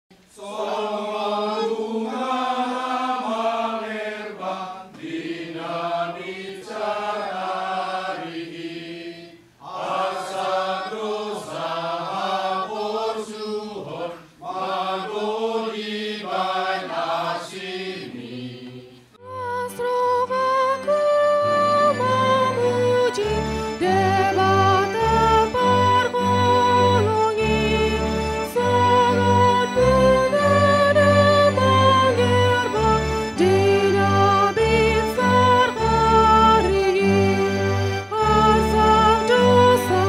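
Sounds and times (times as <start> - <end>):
choir singing in harmony: 0.3 - 40.0
held instrumental notes: 19.2 - 40.0.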